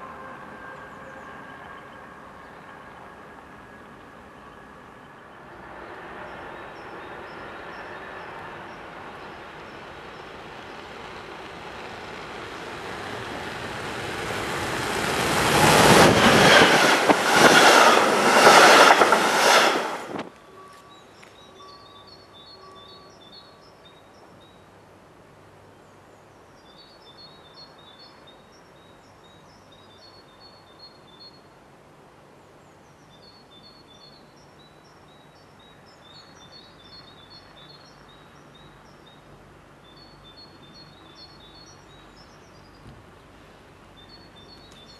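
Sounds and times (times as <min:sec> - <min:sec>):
train passing at speed: 0:00.0 - 0:23.9.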